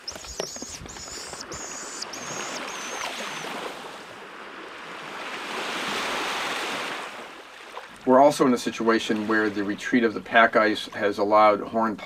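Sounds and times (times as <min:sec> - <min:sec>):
surf washing onto shore: 0:00.0 - 0:10.6.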